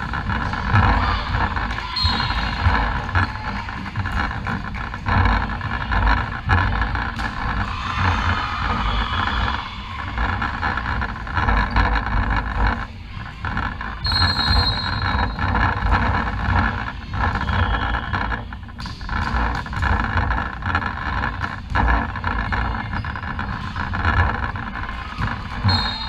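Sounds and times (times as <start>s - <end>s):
distant crowd and player noise: 0.0s - 26.0s
low rumble in a sports hall: 0.0s - 26.0s
referee's whistle blast: 14.0s - 15.3s, 25.6s - 26.0s.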